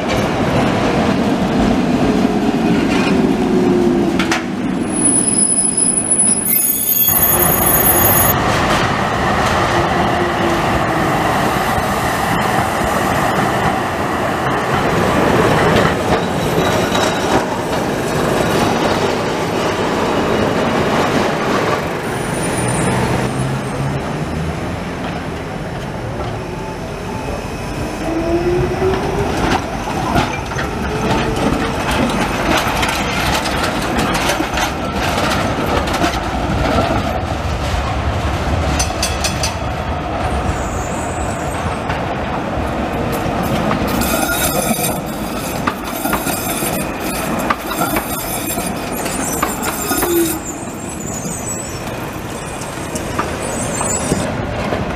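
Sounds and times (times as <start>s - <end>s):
tram wheels rumbling on rails: 0.0s - 54.9s
wheels clacking over rail joints: 14.4s - 22.0s, 28.8s - 39.8s, 43.0s - 50.6s, 51.8s - 54.9s.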